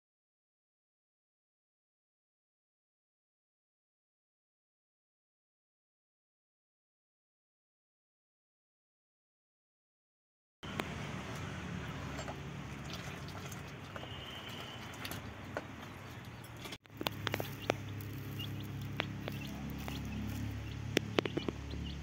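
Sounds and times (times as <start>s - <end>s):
chicks pecking on concrete: 12.7s - 22.0s
chicks cheeping: 15.8s - 22.0s.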